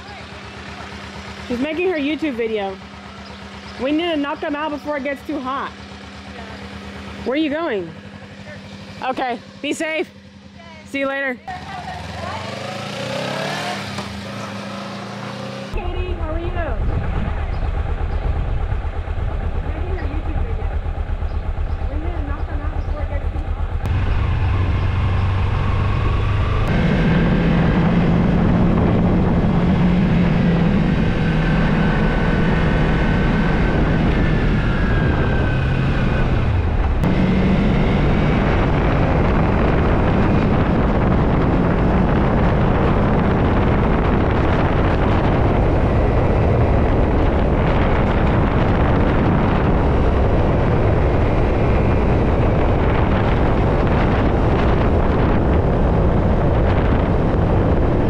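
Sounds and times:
motorcycle engine running: 0:00.0 - 0:58.0
wind on microphone: 0:15.7 - 0:58.0.

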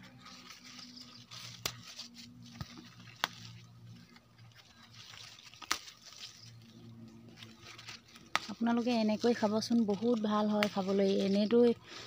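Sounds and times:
leaves rustling and snapping: 0:00.0 - 0:12.0.

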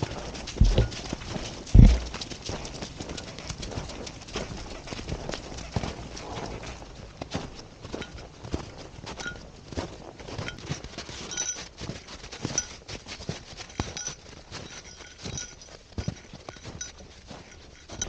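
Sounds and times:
footsteps crunching on snow: 0:00.2 - 0:02.3.

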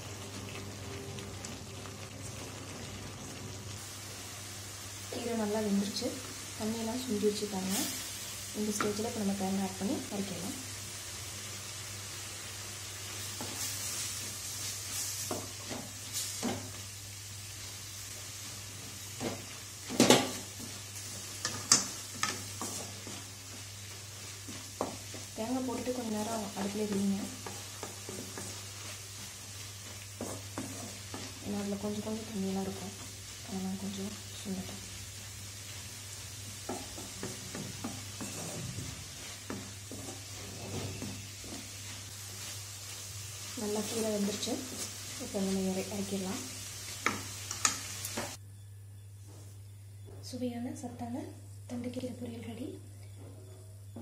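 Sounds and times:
light sizzle: 0:00.0 - 0:48.4, 0:49.5 - 0:54.0
spatula stirring greens: 0:12.6 - 0:48.4.

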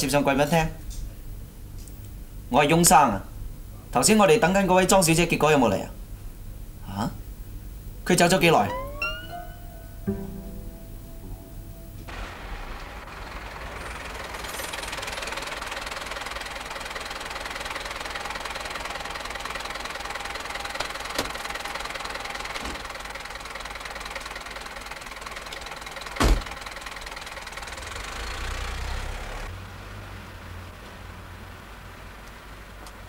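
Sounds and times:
car engine running: 0:09.6 - 0:29.7
loud thump: 0:26.2 - 0:26.5.

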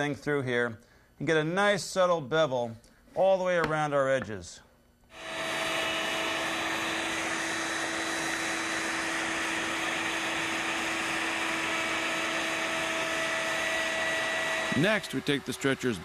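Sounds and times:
router whining: 0:05.1 - 0:16.0.

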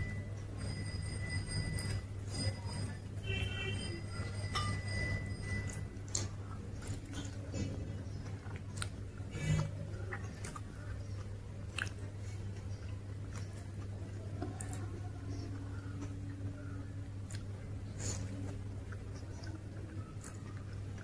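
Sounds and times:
steady low hum: 0:00.0 - 0:21.0
person chewing: 0:05.5 - 0:21.0.

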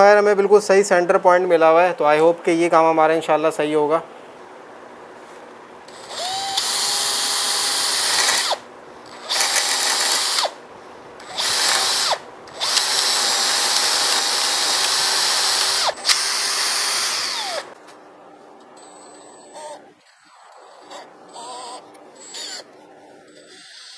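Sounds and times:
drill bit grinding metal: 0:05.9 - 0:10.5, 0:11.2 - 0:17.7, 0:19.2 - 0:23.9
cordless drill motor whine: 0:05.9 - 0:10.6, 0:11.2 - 0:17.8, 0:18.8 - 0:22.7.

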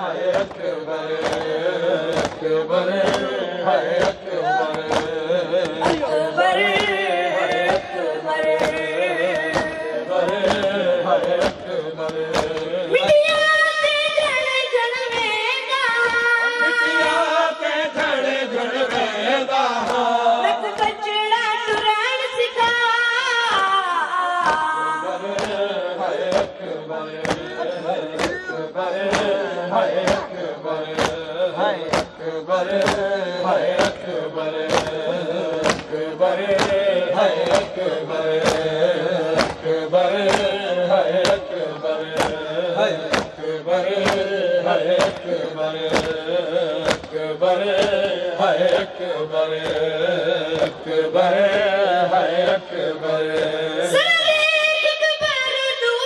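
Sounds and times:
boy singing a lament: 0:00.0 - 0:52.2, 0:53.1 - 0:56.0
young men singing along: 0:00.0 - 0:56.0
chest-beating slaps: 0:00.2 - 0:13.2, 0:19.8 - 0:20.1, 0:24.4 - 0:24.7, 0:25.3 - 0:48.9, 0:49.5 - 0:51.7.

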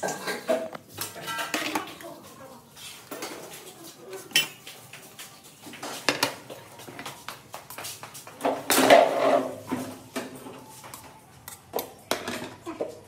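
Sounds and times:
steel spoon clinking on plates: 0:04.3 - 0:04.8, 0:10.3 - 0:12.5.

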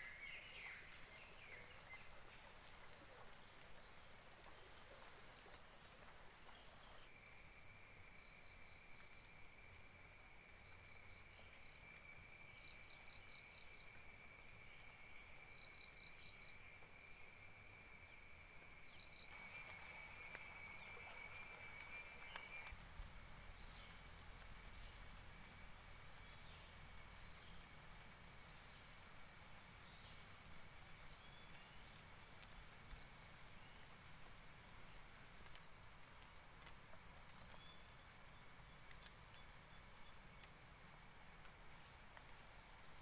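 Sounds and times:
insects shrilling drone: 0:07.1 - 0:22.7
rapid insect chirps: 0:07.1 - 0:22.8.

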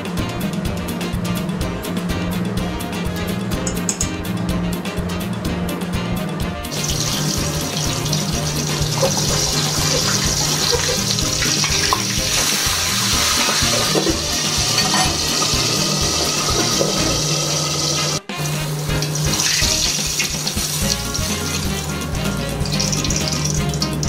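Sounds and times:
fish sizzling in hot oil: 0:06.8 - 0:18.2, 0:18.8 - 0:22.0, 0:22.7 - 0:24.0.

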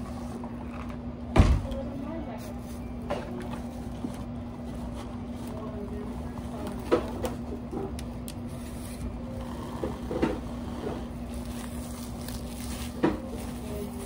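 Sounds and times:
steady low hum: 0:00.0 - 0:14.0
plastic film rustling and crinkling: 0:11.1 - 0:14.0.

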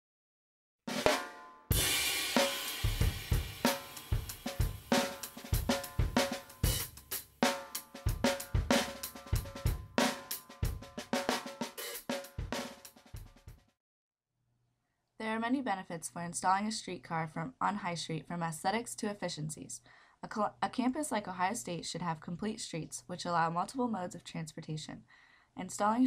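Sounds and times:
drum kit beat with cymbals: 0:00.9 - 0:13.8.

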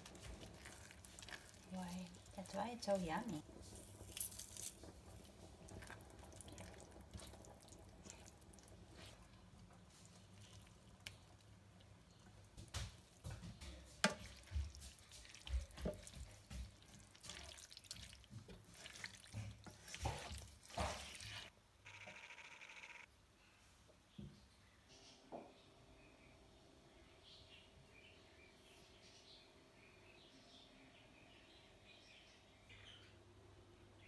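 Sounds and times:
wet stirring in sauce: 0:00.0 - 0:21.5.

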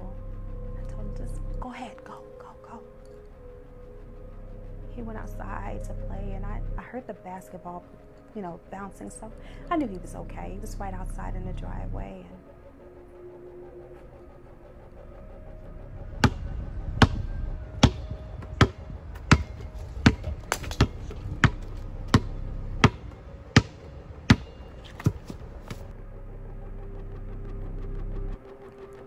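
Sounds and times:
low rumble: 0:00.0 - 0:07.6, 0:08.7 - 0:28.5
basketball bouncing on concrete: 0:16.2 - 0:17.2, 0:17.8 - 0:25.8.

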